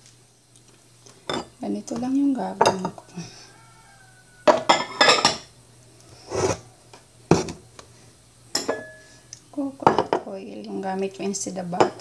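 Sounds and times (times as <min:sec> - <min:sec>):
glass and utensils clinking: 0:01.2 - 0:01.6, 0:04.4 - 0:05.5, 0:08.5 - 0:09.0
faint ringing: 0:01.2 - 0:05.6, 0:07.4 - 0:10.3.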